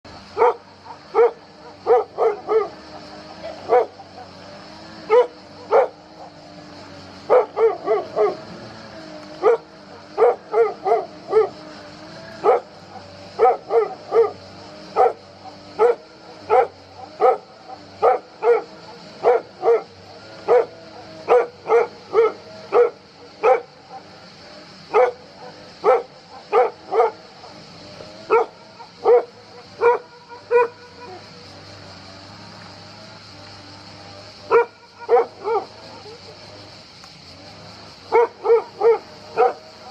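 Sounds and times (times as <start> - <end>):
steady high hiss: 0.0 - 39.9
dog barking: 0.4 - 2.8, 3.7 - 4.0, 5.1 - 6.0, 7.3 - 8.4, 9.4 - 11.6, 13.4 - 14.4, 15.8 - 17.4, 18.0 - 19.9, 20.5 - 23.7, 24.9 - 27.2, 28.3 - 31.2, 34.5 - 35.7, 38.1 - 39.6.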